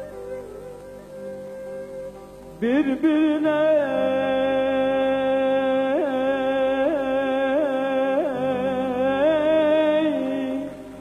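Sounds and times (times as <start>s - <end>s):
soft musical accompaniment: 0.0s - 11.0s
man singing a long ornamented note: 2.6s - 11.0s.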